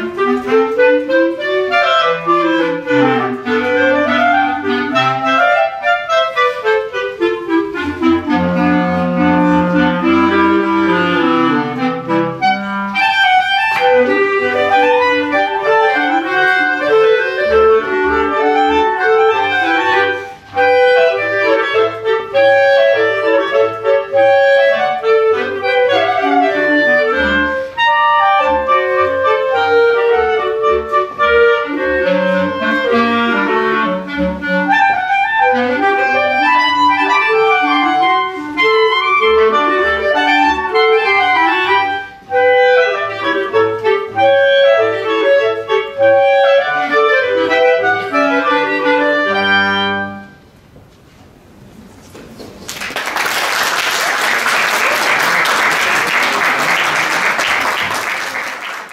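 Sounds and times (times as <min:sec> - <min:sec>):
bass clarinet low notes: 0:00.0 - 0:50.5
clarinets playing melodic lines: 0:00.0 - 0:50.5.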